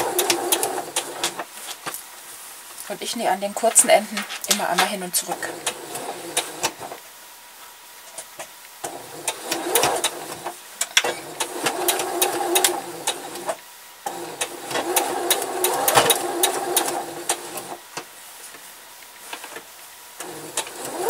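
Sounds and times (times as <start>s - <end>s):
sewing machine stitching: 0.0s - 1.5s, 4.5s - 7.0s, 8.8s - 17.8s, 20.2s - 21.0s.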